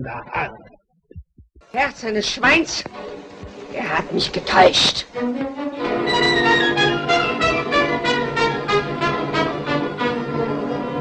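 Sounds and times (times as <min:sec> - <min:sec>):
orchestral strings and brass: 0:02.9 - 0:11.0.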